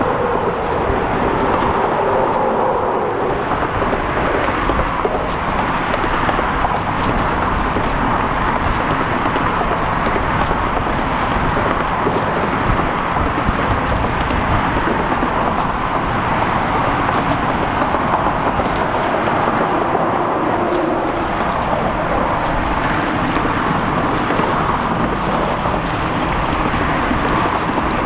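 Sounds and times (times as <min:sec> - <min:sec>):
road traffic roar: 0:00.0 - 0:28.0.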